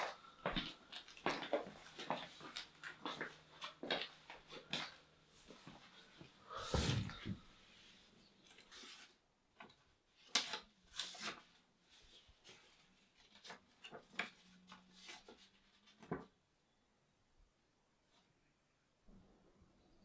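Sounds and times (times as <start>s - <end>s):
paper rustling and crackling: 8.4s - 16.4s.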